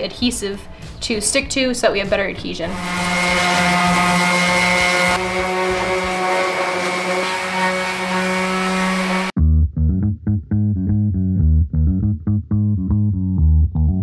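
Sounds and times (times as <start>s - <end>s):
orbital sander on metal: 2.7s - 9.4s.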